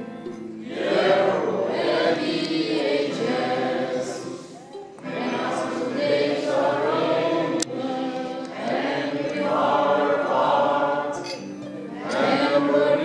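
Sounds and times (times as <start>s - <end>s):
crowd singing: 0.6s - 13.0s.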